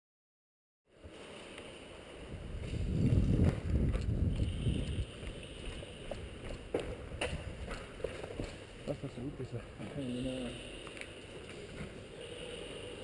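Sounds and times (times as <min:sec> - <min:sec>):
low rumble of wind: 0:00.9 - 0:09.8.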